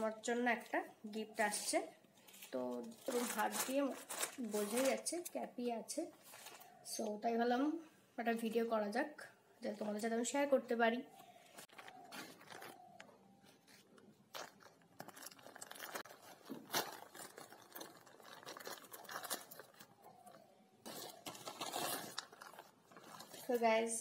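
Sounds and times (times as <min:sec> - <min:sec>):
plastic bag crinkling and tearing: 0:02.1 - 0:05.4, 0:11.6 - 0:23.6.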